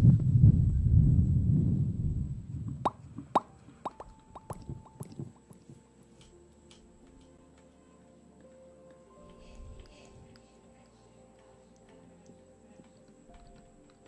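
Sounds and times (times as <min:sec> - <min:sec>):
wet mouth pops: 0:02.7 - 0:05.7.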